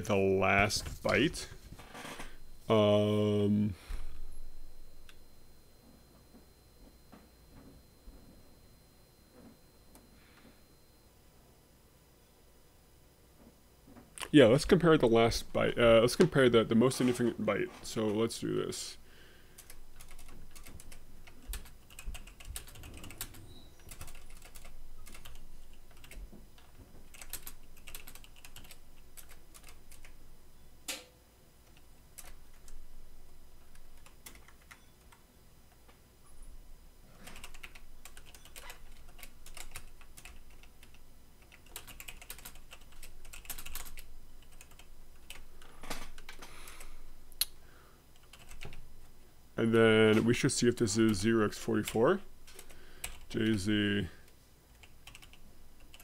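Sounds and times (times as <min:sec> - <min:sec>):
computer keyboard typing: 0:19.6 - 0:30.2, 0:31.7 - 0:32.8, 0:33.6 - 0:35.2, 0:37.2 - 0:45.5, 0:48.2 - 0:48.8, 0:51.8 - 0:53.6, 0:54.7 - 0:56.0.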